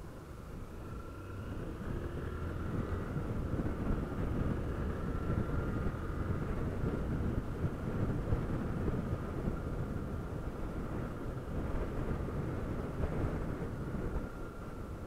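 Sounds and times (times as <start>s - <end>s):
motorcycle engine running: 0.0s - 15.0s
wind on microphone: 0.0s - 15.0s.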